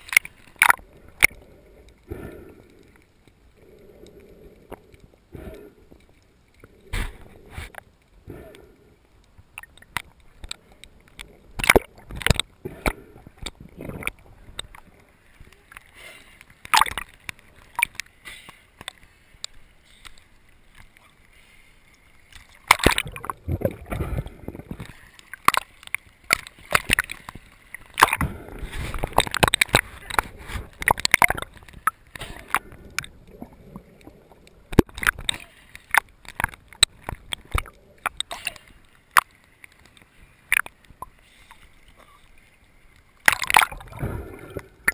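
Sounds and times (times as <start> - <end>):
underwater clicks and pops: 0.0 - 2.0, 9.2 - 21.0, 22.3 - 41.6, 43.2 - 44.9
bubbling and sloshing water: 0.0 - 44.9.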